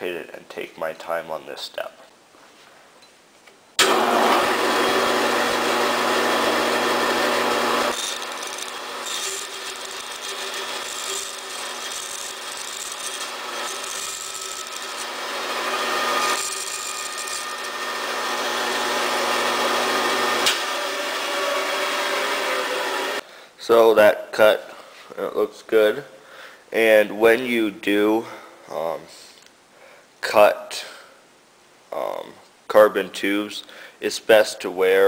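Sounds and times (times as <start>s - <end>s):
bandsaw cutting tube: 3.8s - 20.6s
bandsaw motor hum: 3.8s - 23.2s.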